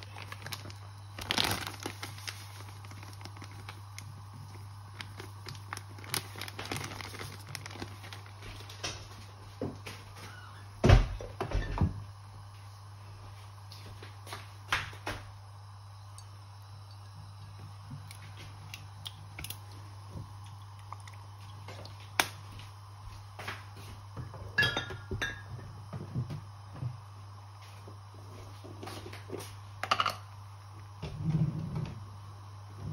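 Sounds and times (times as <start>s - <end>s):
steady low hum: 0.0s - 32.9s
utensils clinking on a saucepan: 24.6s - 25.5s.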